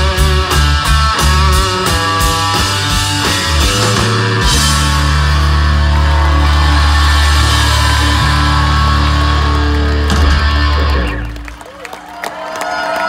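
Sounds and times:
drum kit hits: 0.0s - 5.8s
electric guitar chords: 0.0s - 11.6s.

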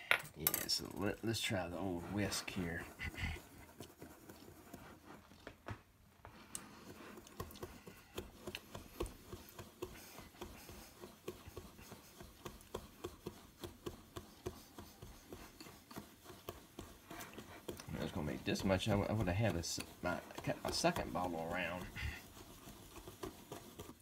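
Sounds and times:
wire whisk stirring dry powder: 0.0s - 5.3s, 6.3s - 24.0s.

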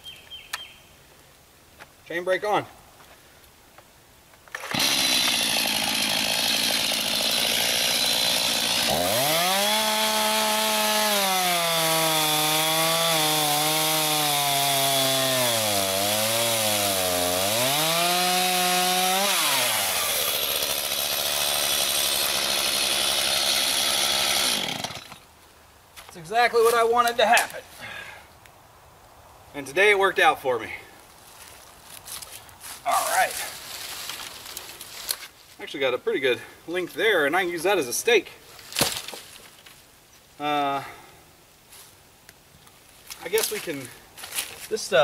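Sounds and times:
chainsaw at full throttle: 4.5s - 25.2s
chainsaw cutting through log: 4.5s - 25.2s.

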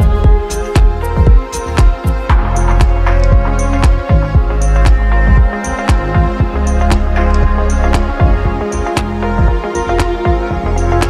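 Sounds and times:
deep drum thumps: 0.0s - 10.7s
high percussion ticks: 0.0s - 11.0s
sustained bass: 0.0s - 11.0s.

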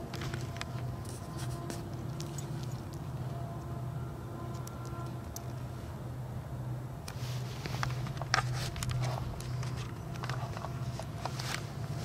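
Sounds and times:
steady low hum: 0.0s - 12.0s
clothing rustling against camera: 7.1s - 12.0s.

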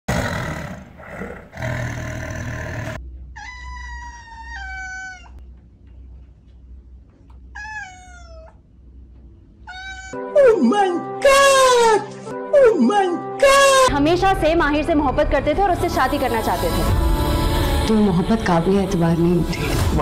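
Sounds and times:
cat meowing: 3.4s - 5.4s, 7.5s - 8.6s, 9.6s - 10.2s.

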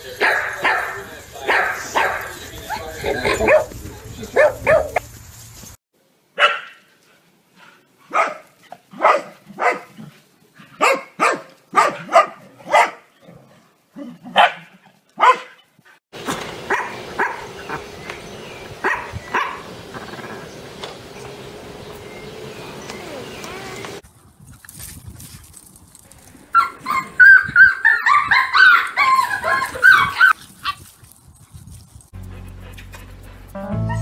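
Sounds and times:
dogs barking: 0.0s - 5.0s, 6.4s - 6.8s, 8.1s - 10.0s, 10.8s - 13.1s, 14.3s - 15.6s, 16.3s - 21.5s, 26.5s - 30.4s.

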